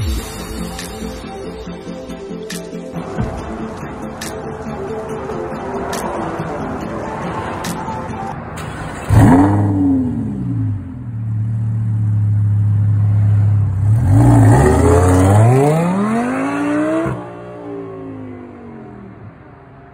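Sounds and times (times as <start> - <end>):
sports car engine revving: 8.6 - 19.0.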